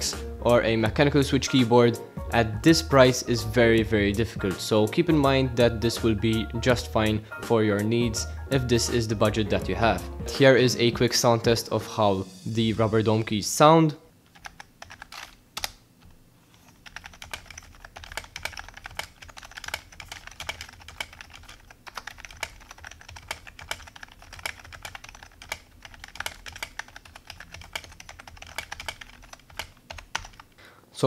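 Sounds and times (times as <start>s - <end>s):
quiet keyboard typing: 14.3s - 15.8s, 16.5s - 30.6s.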